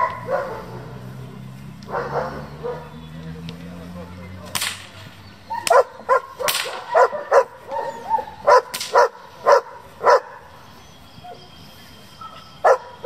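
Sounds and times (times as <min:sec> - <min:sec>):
dog barking: 0:00.0 - 0:01.1, 0:01.8 - 0:03.0, 0:05.5 - 0:10.6, 0:12.3 - 0:13.0
stick cracks: 0:04.5 - 0:05.0, 0:06.4 - 0:06.9, 0:08.7 - 0:09.0.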